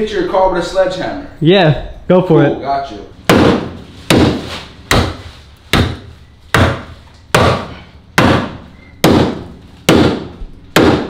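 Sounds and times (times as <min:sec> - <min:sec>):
sledgehammer striking steel frame: 0:03.2 - 0:11.0.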